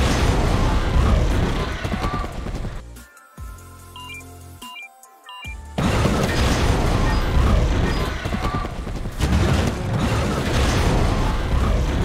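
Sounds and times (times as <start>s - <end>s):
action film sound effects: 0.0s - 12.0s
music: 0.1s - 9.9s.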